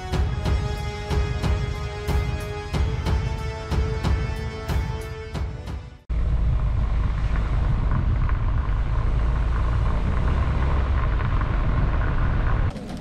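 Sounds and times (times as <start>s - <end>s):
car engine and road rumble: 5.8s - 13.0s.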